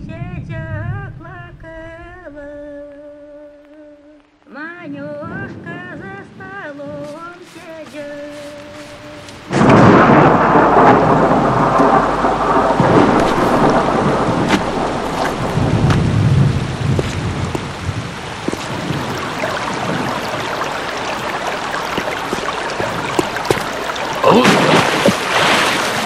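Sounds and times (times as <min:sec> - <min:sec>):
heavy rain: 0:05.2 - 0:26.0
thunder rolling: 0:09.4 - 0:25.8.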